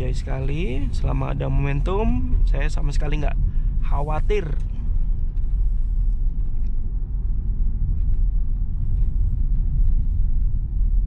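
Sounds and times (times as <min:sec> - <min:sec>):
car interior road rumble: 0:00.0 - 0:11.0.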